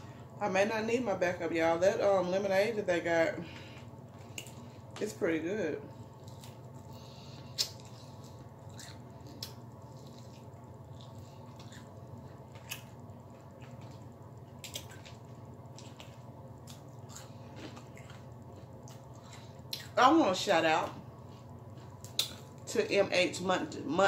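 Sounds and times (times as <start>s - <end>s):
low hum: 0.0s - 24.0s
wet chewing smacks and clicks: 7.5s - 14.0s, 21.4s - 22.6s.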